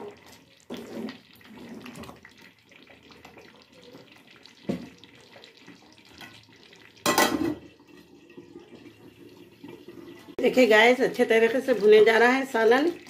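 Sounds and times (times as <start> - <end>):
gravy bubbling: 0.0 - 13.0.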